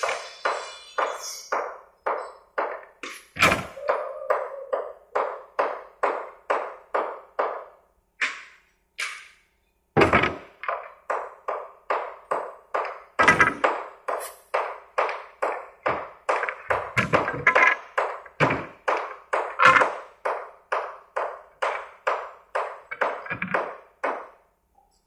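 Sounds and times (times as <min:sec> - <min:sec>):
hammer striking nails into wood: 0:04.8 - 0:09.4, 0:10.0 - 0:24.4.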